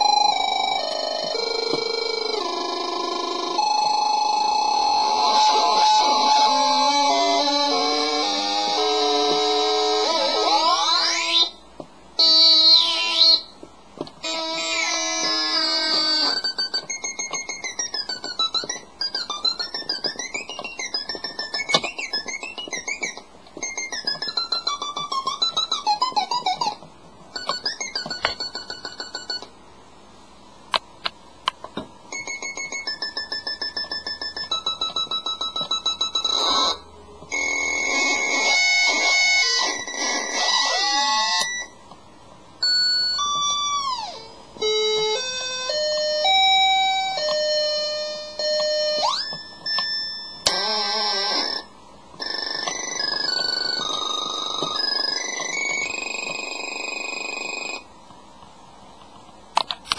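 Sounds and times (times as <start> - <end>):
glitchy electronic beeps: 51.2 - 57.9.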